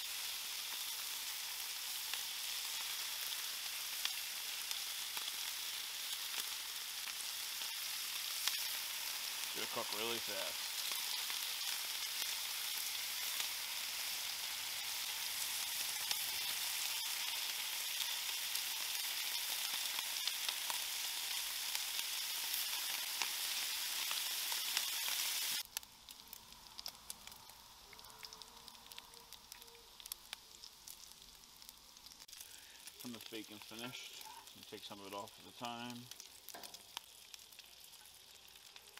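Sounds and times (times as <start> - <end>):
bacon sizzling on griddle: 0.0 - 38.9
fat popping and crackling: 25.6 - 38.9.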